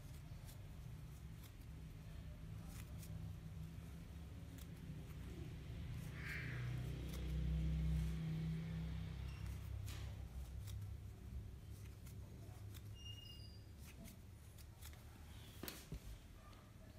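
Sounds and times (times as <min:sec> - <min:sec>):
crochet hook ticks and rustles: 0:06.8 - 0:13.1
faint high peeps: 0:09.3 - 0:09.6, 0:12.9 - 0:13.8.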